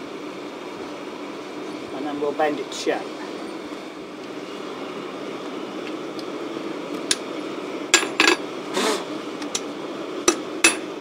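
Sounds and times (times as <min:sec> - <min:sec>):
forge air blower rushing: 0:00.0 - 0:11.0
hammer striking steel: 0:10.3 - 0:10.9.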